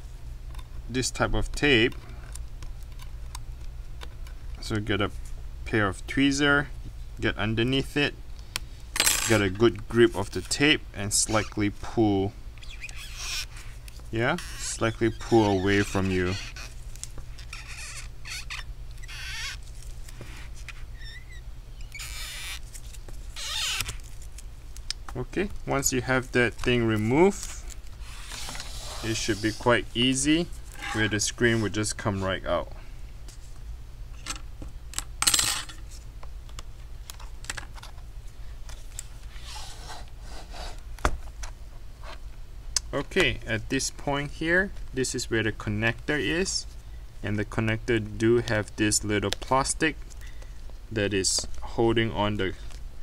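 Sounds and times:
scraping rustle: 0:26.1 - 0:32.2.

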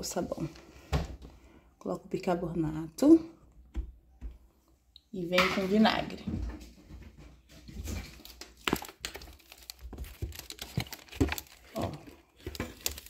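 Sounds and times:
small crackles and rustles: 0:05.8 - 0:13.0.

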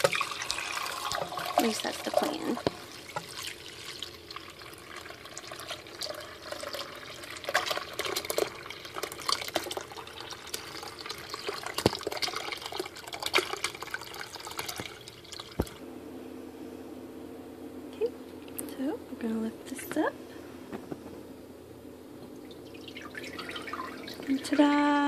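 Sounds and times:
liquid pouring into a bowl: 0:00.0 - 0:15.8, 0:22.4 - 0:24.9.

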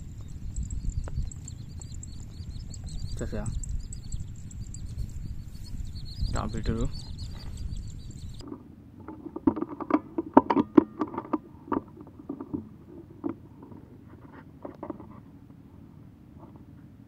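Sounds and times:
air rifle handling knocks and clicks: 0:09.1 - 0:12.6.

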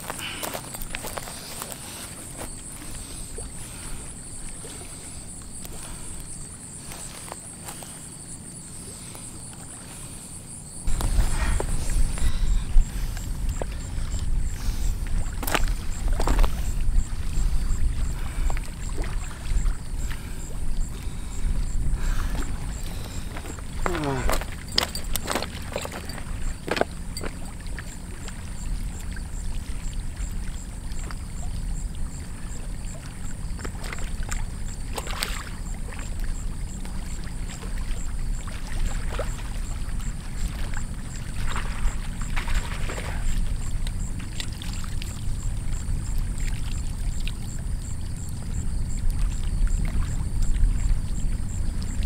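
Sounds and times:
small waves lapping: 0:00.0 - 0:52.0
wind rumble on microphone: 0:10.7 - 0:34.9, 0:35.7 - 0:52.0
splashes and knocks in water: 0:15.0 - 0:16.7, 0:17.9 - 0:20.3, 0:22.2 - 0:29.2, 0:32.8 - 0:45.2.

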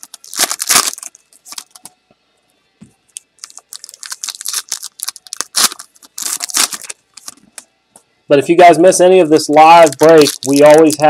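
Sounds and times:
foil wrapper crinkling and tearing: 0:00.0 - 0:01.9, 0:03.2 - 0:07.4, 0:09.4 - 0:11.0.

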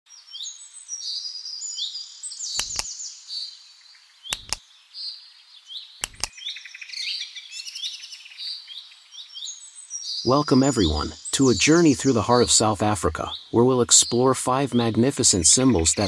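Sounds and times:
songbirds chirping: 0:00.1 - 0:16.0
sharp double clicks: 0:02.6 - 0:02.9, 0:04.3 - 0:04.6, 0:06.0 - 0:06.3.

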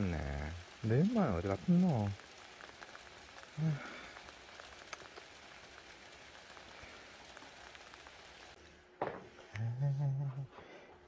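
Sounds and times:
heavy rain falling: 0:00.0 - 0:08.6
low voice: 0:09.5 - 0:10.6.

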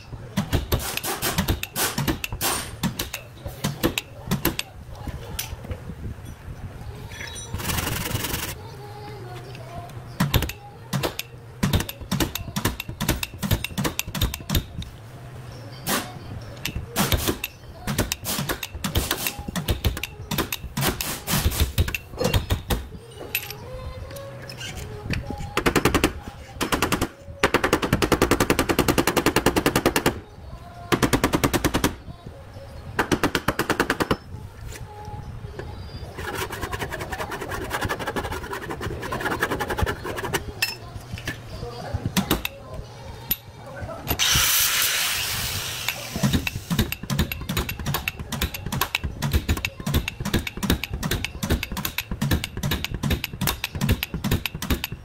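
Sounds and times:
dent puller zaps and knocks: 0:00.4 - 0:04.7, 0:10.2 - 0:14.8, 0:15.9 - 0:22.9, 0:44.1 - 0:55.0.

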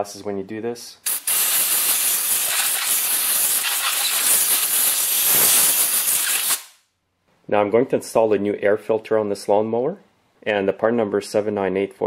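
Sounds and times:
compressed air hiss: 0:01.0 - 0:06.8.

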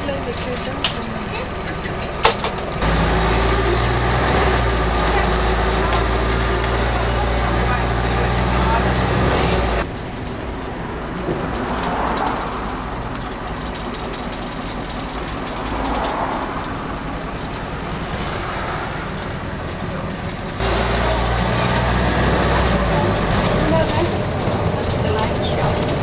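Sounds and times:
bus engine and road noise: 0:00.0 - 0:26.0.

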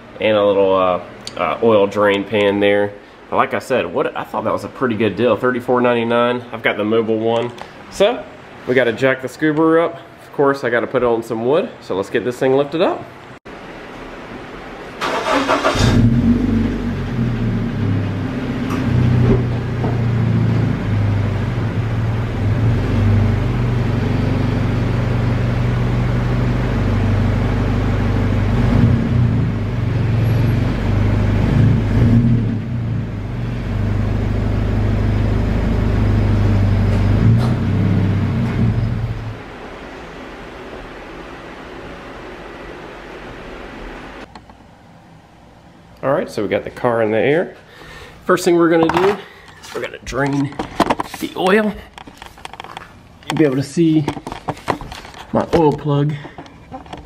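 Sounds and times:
car engine starting and running: 0:15.0 - 0:39.7.

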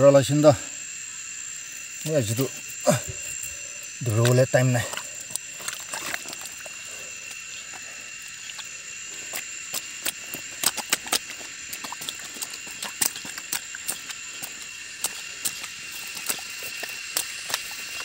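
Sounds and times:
boots squelching in mud: 0:04.1 - 0:18.0.

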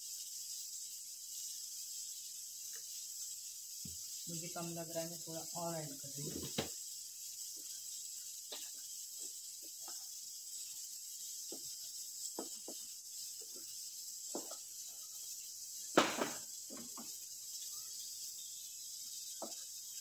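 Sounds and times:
steady hiss: 0:00.0 - 0:20.0
spatula scraping frying pan: 0:00.1 - 0:20.0
spatula knocking against pan: 0:11.5 - 0:12.9, 0:14.3 - 0:14.6, 0:16.0 - 0:17.2.

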